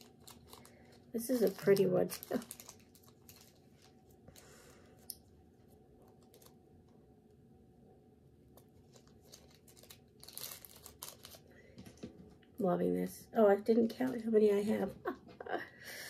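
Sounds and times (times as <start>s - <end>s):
packaging crinkling rustle: 0.0s - 5.1s, 5.7s - 6.9s, 8.6s - 12.1s.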